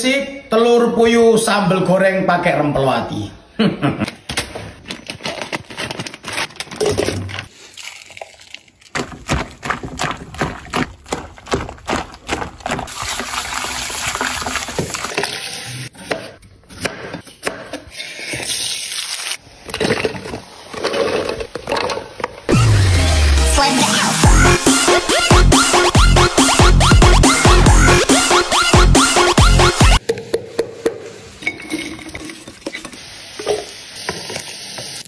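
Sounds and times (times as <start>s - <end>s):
scissors snipping plastic bag: 4.8s - 9.1s
tap water running into metal bowl: 12.8s - 15.4s.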